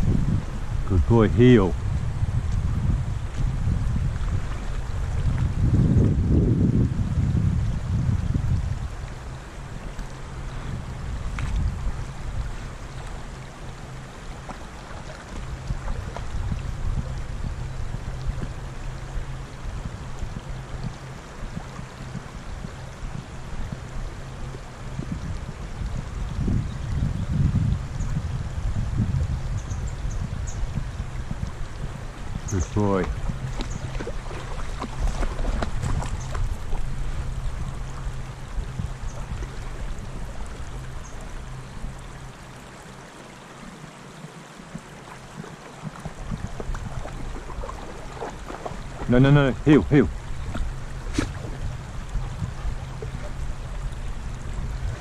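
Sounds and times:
stream flowing over riffles: 0.0s - 55.0s
wind rumble on microphone: 0.0s - 55.0s
low rumble: 15.4s - 42.5s.

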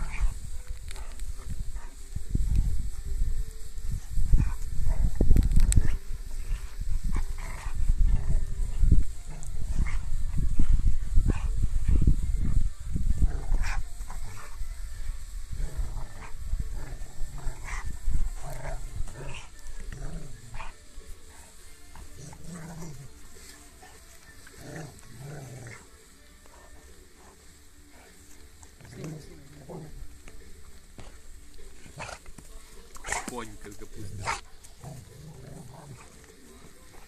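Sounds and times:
dog growling: 15.5s - 20.8s, 22.1s - 23.2s, 23.8s - 25.9s, 28.8s - 30.2s, 34.0s - 37.0s.

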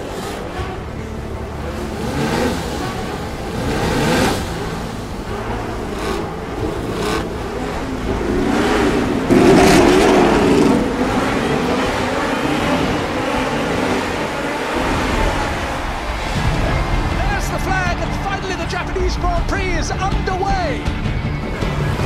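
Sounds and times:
race car engines revving: 0.0s - 22.0s.

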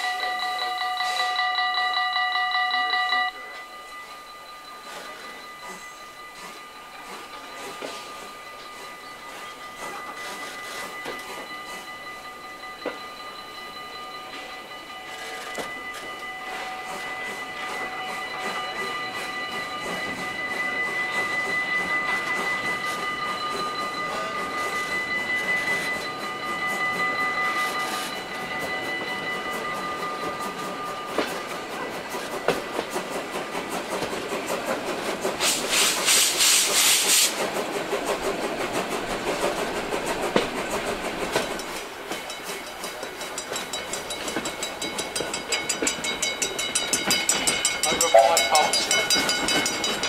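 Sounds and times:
level-crossing warning bell: 0.0s - 50.0s
train running on track: 0.0s - 50.0s
steam hiss: 16.4s - 45.2s
wheels clicking over rail joints: 21.2s - 50.0s.

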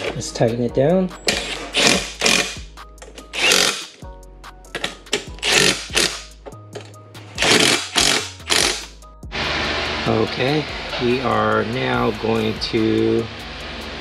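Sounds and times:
background music with held notes: 0.0s - 14.0s
impact driver hammering: 1.3s - 2.6s, 3.4s - 3.9s, 5.2s - 6.3s, 7.4s - 8.9s.

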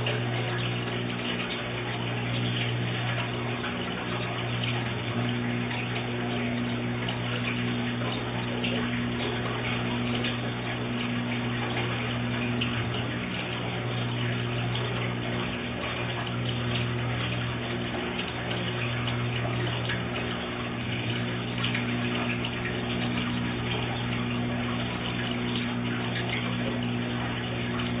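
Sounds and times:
low pump hum: 0.0s - 28.0s.

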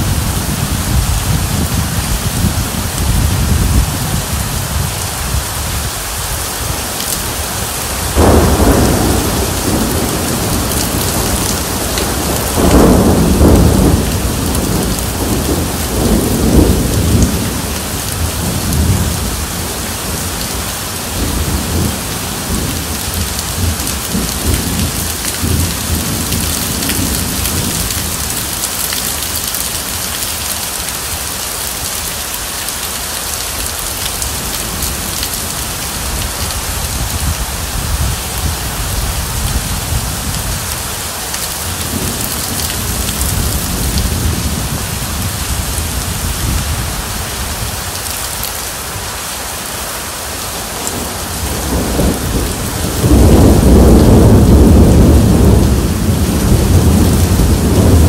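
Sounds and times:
heavy rain falling: 0.0s - 58.0s
rolling thunder: 8.0s - 20.3s, 21.1s - 28.7s, 50.8s - 58.0s.

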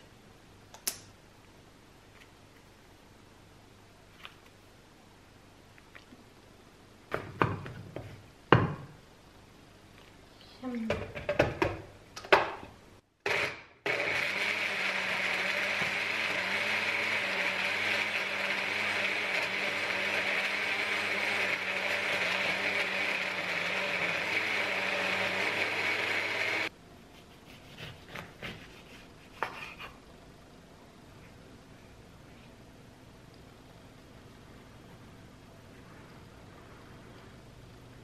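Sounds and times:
blender motor whirring: 13.3s - 26.7s.

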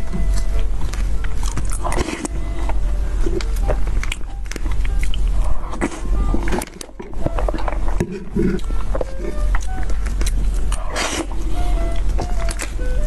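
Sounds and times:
wet mouth sounds and chewing: 0.0s - 13.0s.

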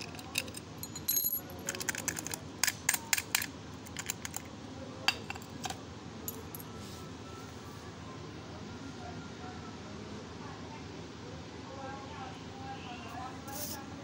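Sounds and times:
padlock and keys clinking: 0.0s - 4.5s
padlock set down on concrete: 0.2s - 4.4s.

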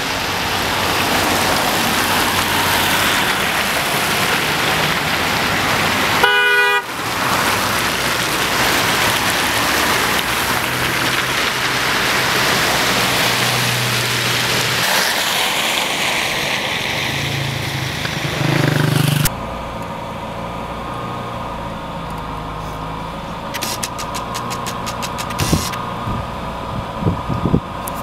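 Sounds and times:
road traffic hiss: 0.0s - 28.0s
vehicle engine running: 17.4s - 28.0s
quick ticks: 23.6s - 25.8s.

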